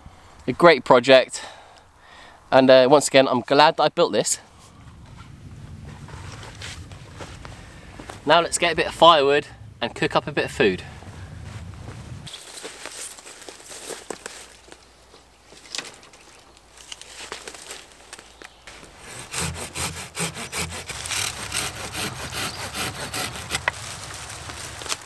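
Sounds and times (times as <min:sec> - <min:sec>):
footsteps through undergrowth: 0:11.4 - 0:19.0, 0:23.3 - 0:25.0
pruning saw cutting stem: 0:18.7 - 0:25.0.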